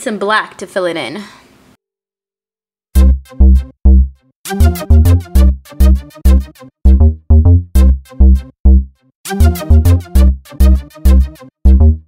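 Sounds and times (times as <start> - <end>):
electronic music with drum-machine beat: 3.0 - 12.0.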